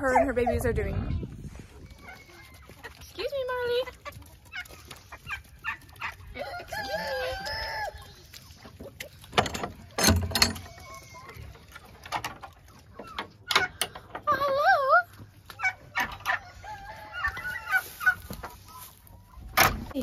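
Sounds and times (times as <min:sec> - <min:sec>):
rooster crowing: 0:06.4 - 0:08.0, 0:16.3 - 0:17.9.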